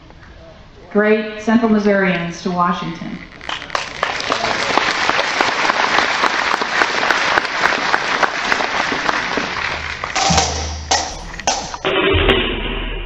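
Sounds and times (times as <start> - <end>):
audience applauding: 3.4 - 11.9
music: 9.7 - 12.6.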